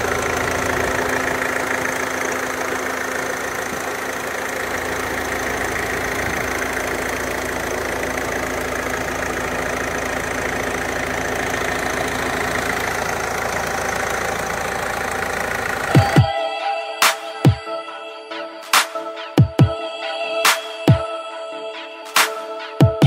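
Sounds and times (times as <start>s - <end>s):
diesel engine idling: 0.0s - 16.3s.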